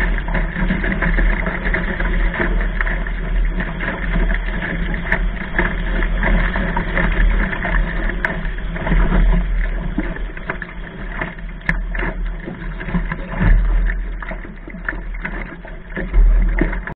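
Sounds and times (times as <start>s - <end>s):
water splashing along hull: 0.0s - 16.9s.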